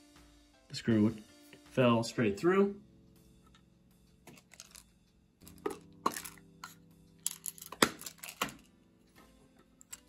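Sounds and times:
small parts clicking and tapping: 0:04.3 - 0:08.7.

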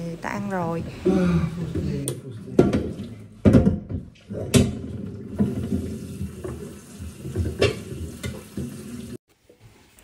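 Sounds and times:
pot and colander clanking: 0:01.7 - 0:09.0
water pouring from tap: 0:04.4 - 0:09.2.

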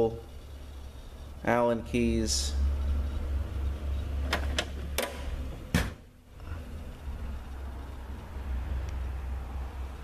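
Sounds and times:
steady low hum: 0:00.0 - 0:10.0
metal drawer clunk: 0:04.2 - 0:06.1.

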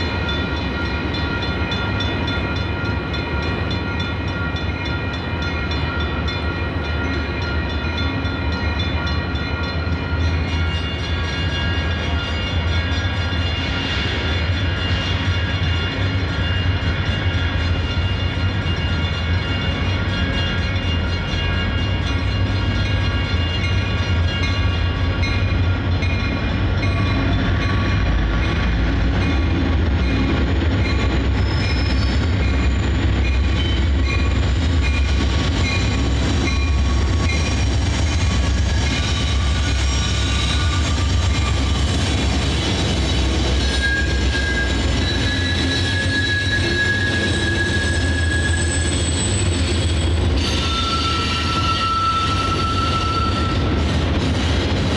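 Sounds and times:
diesel locomotive rumbling: 0:00.0 - 0:54.9
steel wheels squealing on track: 0:10.6 - 0:54.4.

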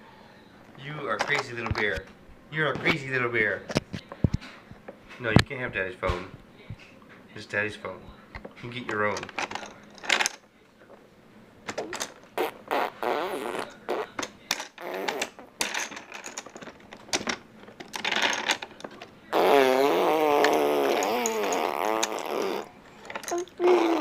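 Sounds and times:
baby blowing raspberries: 0:19.3 - 0:22.7, 0:23.3 - 0:24.0.

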